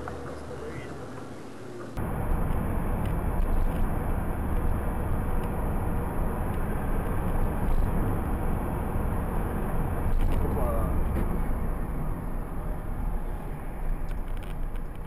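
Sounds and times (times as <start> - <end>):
car road and engine noise: 0.0 - 15.0.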